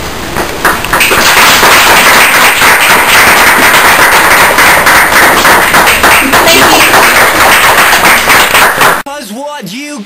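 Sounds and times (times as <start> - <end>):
audience applauding: 0.9 - 9.0.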